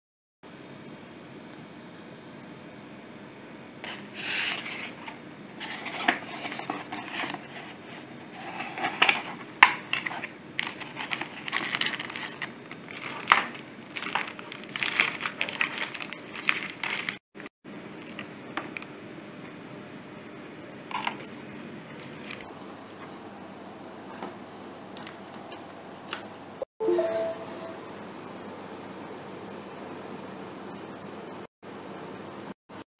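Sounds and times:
cardboard and plastic rustling: 3.8s - 17.2s, 21.9s - 22.5s.

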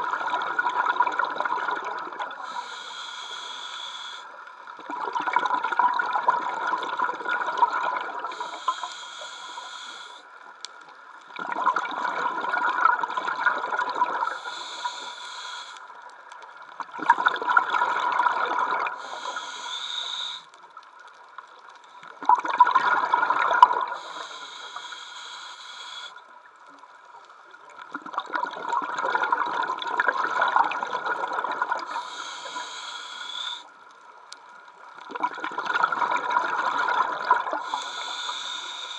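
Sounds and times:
faint steady tone: 0.0s - 5.0s, 7.4s - 11.4s, 17.9s - 27.8s
scuba diver breathing underwater: 1.2s - 5.8s, 6.7s - 10.4s, 11.4s - 16.0s, 17.6s - 20.6s, 22.7s - 26.3s, 30.1s - 33.7s, 35.6s - 38.9s.

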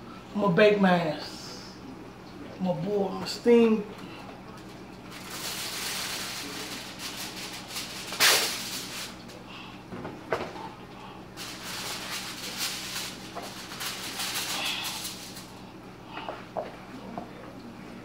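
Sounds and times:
aluminium foil crinkling: 4.5s - 9.6s, 11.3s - 15.8s.

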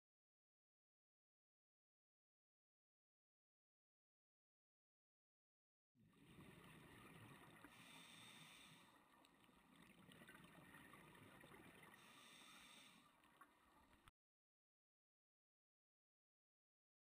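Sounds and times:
underwater breathing bubbles: 6.2s - 14.1s.

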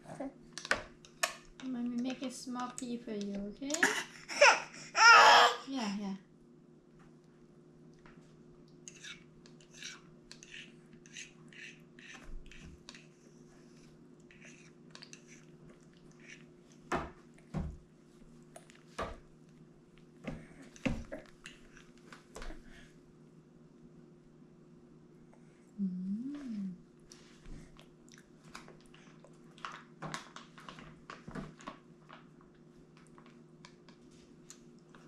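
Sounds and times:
steady low hum: 0.0s - 29.6s
baby chewing with mouth clicks: 8.7s - 13.2s, 14.2s - 17.5s, 18.4s - 18.9s, 27.1s - 35.0s.

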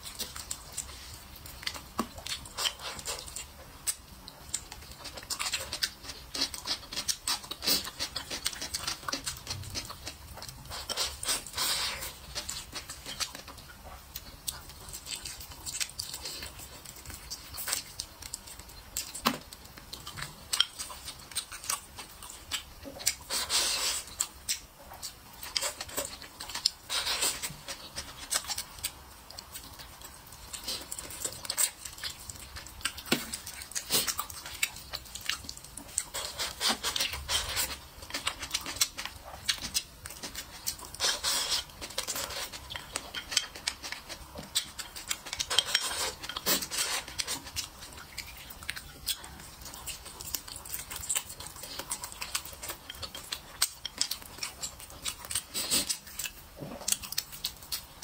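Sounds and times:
chewing and lip-smacking: 0.0s - 58.0s.

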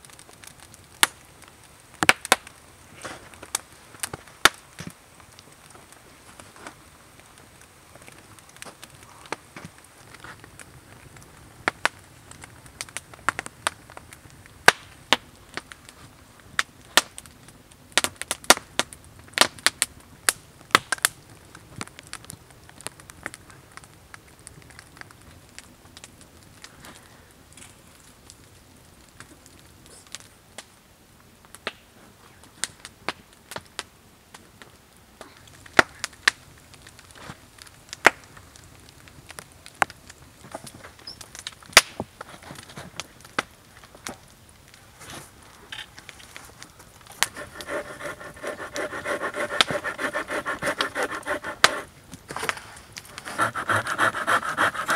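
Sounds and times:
wooden stakes and logs knocking: 47.2s - 51.9s, 53.1s - 54.9s.

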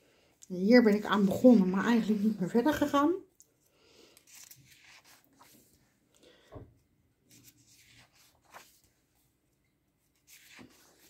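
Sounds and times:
paper pages rustling: 4.1s - 6.0s, 7.2s - 9.2s, 10.1s - 11.0s.

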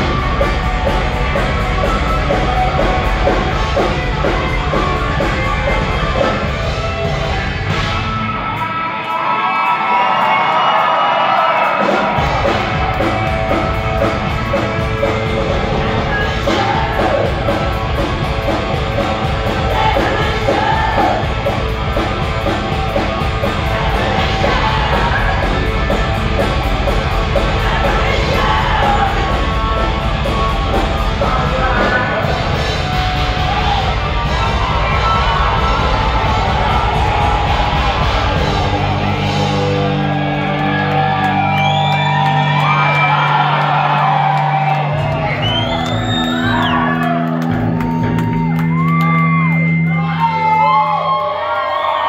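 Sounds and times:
crowd shouting: 0.0s - 14.6s, 18.8s - 30.0s, 31.0s - 52.0s
heavy metal band playing live: 0.0s - 51.6s
distorted electric guitar: 0.0s - 51.7s.

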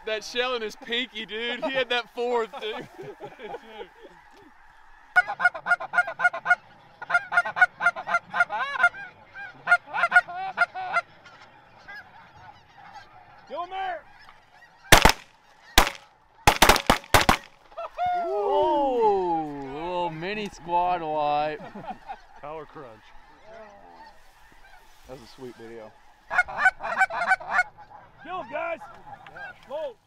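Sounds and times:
geese honking: 0.0s - 30.0s
shotgun blasts: 14.9s - 17.6s.

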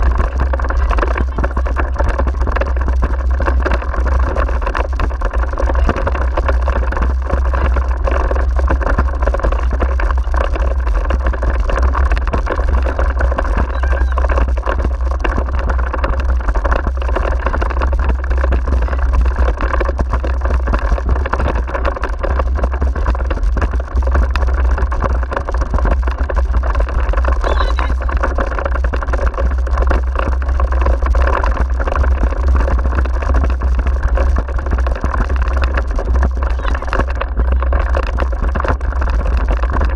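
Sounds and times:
wheeled rig rumbling over rough track: 0.0s - 39.9s
wind buffeting microphone: 0.0s - 39.9s.

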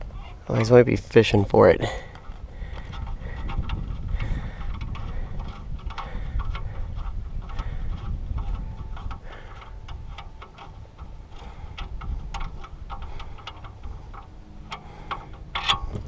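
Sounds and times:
low rumble: 0.0s - 16.0s
metallic clicks of bolt turning: 7.4s - 16.0s.

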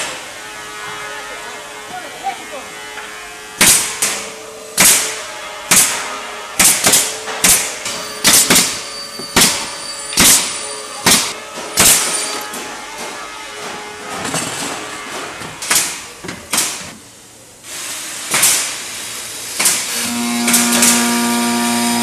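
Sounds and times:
sharp ringing impacts: 6.8s - 12.7s
steady machine hum: 19.9s - 22.0s.

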